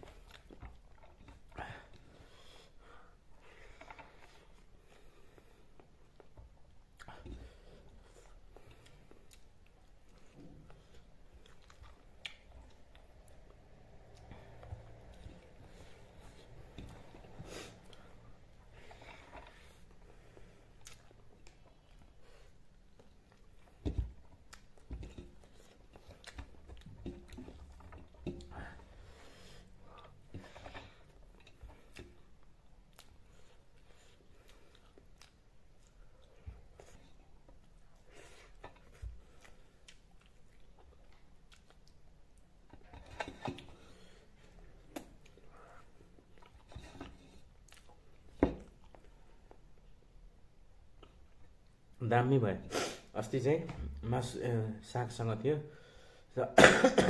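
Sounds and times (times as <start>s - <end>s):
person chewing food: 0.0s - 52.0s.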